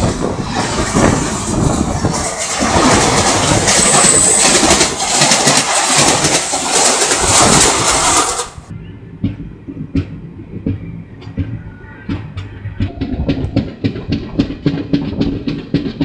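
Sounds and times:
train rushing past: 0.0 - 16.0
train wheel clatter: 0.0 - 16.0
high squeal: 3.0 - 5.1.

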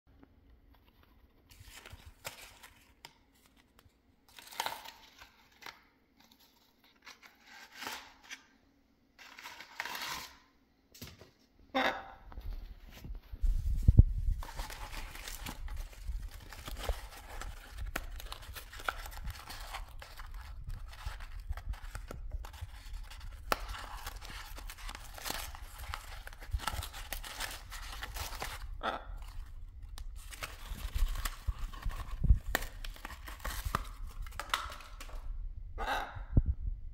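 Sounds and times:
parrot tearing cardboard: 9.2 - 10.5, 14.4 - 35.2.

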